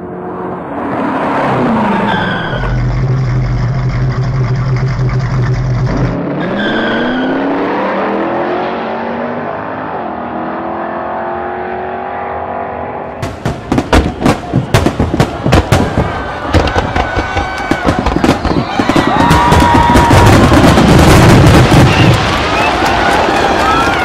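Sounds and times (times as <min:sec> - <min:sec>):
car engine revving: 0:00.0 - 0:13.5
tyre squeal: 0:01.7 - 0:07.5.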